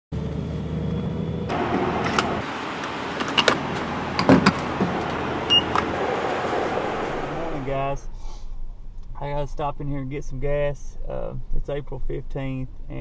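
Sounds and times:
vehicle idling hum: 0:00.2 - 0:08.1.

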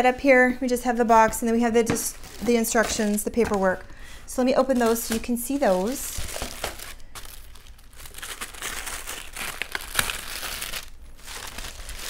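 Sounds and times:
paper rustling and crinkling: 0:01.9 - 0:03.8, 0:04.6 - 0:12.0.

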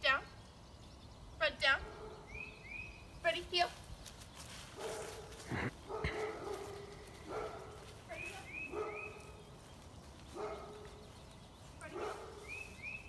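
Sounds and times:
dog barking: 0:04.8 - 0:07.9, 0:08.6 - 0:09.4, 0:10.3 - 0:11.0, 0:11.9 - 0:12.6.

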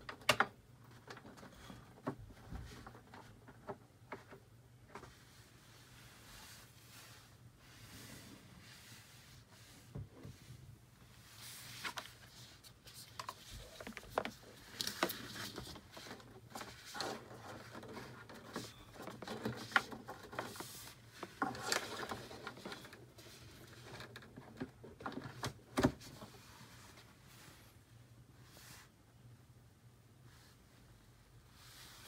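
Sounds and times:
cardboard rustling and scraping: 0:05.0 - 0:27.6.

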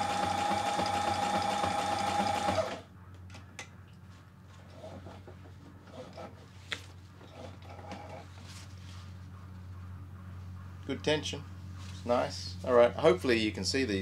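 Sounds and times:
sewing machine whine: 0:00.0 - 0:02.9.

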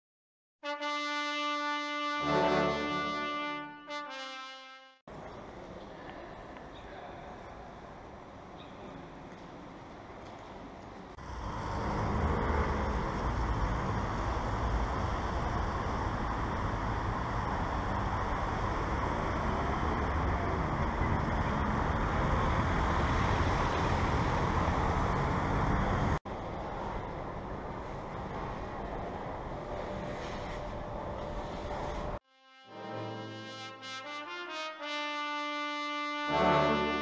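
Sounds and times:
city street traffic: 0:04.6 - 0:32.2
metro platform hum: 0:05.1 - 0:33.5.

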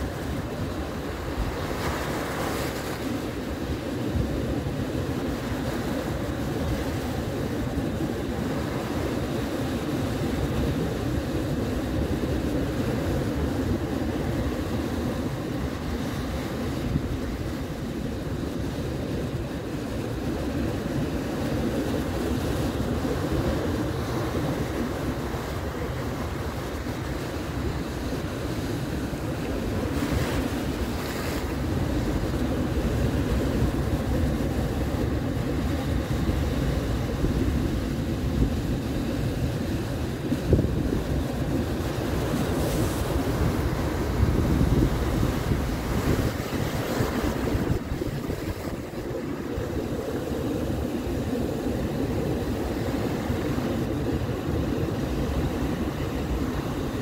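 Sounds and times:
ocean surf breaking: 0:00.0 - 0:57.0
wind buffeting microphone: 0:00.0 - 0:57.0.

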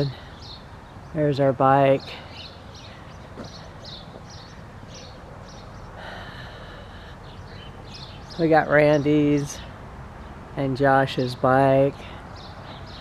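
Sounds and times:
small bird chirping: 0:01.9 - 0:06.0, 0:07.1 - 0:09.8.

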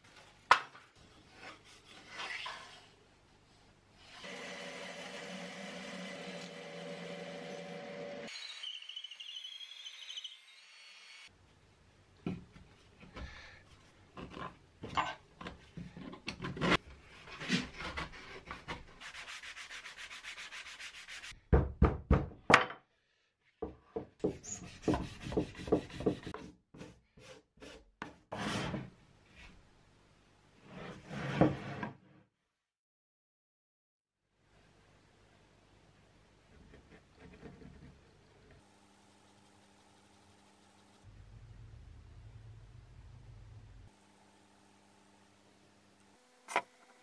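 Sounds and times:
bandsaw running: 0:04.2 - 0:08.8
hand sanding block rubbing: 0:19.0 - 0:21.3.

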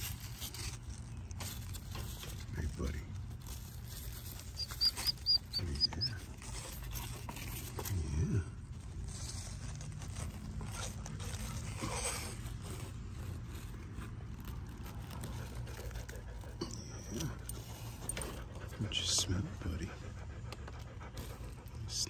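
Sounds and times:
rustling through dry straw: 0:00.0 - 0:16.5
dog sniffing: 0:03.9 - 0:08.1, 0:09.0 - 0:22.0.

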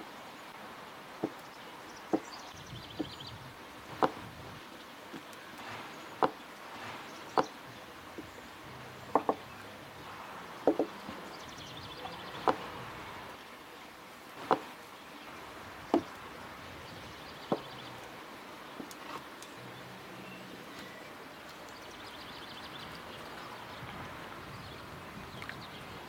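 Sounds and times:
outdoor background noise: 0:00.0 - 0:26.0
short sharp knocks: 0:10.6 - 0:11.0.

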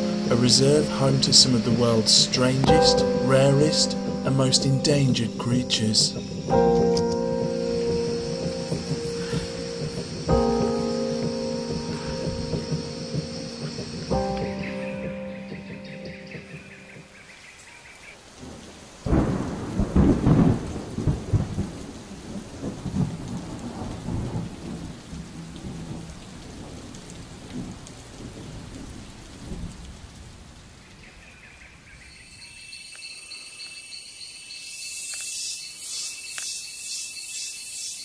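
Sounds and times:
thunder rumbling: 0:00.0 - 0:17.2, 0:18.4 - 0:31.3
rain hissing: 0:00.0 - 0:38.0
high-pitched pulsing calls: 0:32.1 - 0:38.0.

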